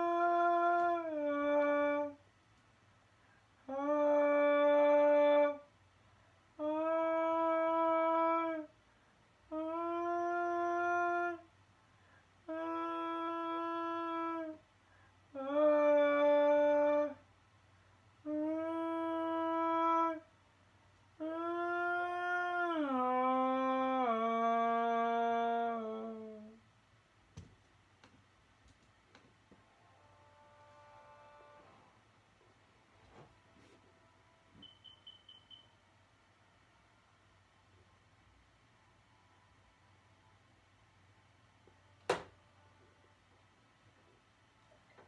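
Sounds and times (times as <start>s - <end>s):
slow melody of held notes: 29.8s - 31.8s.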